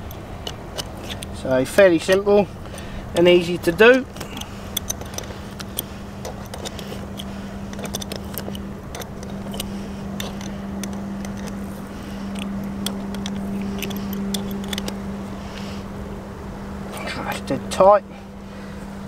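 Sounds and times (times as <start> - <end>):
metal tool clicking and scraping: 0.0 - 15.0
engine hum: 0.0 - 19.0.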